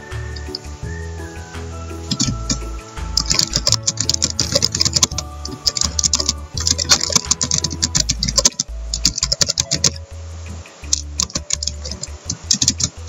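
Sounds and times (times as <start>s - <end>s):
fast typing on keyboard: 3.2s - 10.0s.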